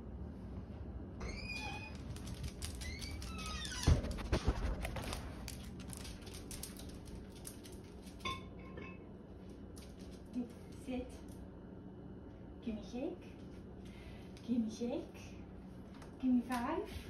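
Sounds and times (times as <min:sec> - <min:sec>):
claws clicking on hardwood floor: 0:01.3 - 0:08.2, 0:09.7 - 0:11.4.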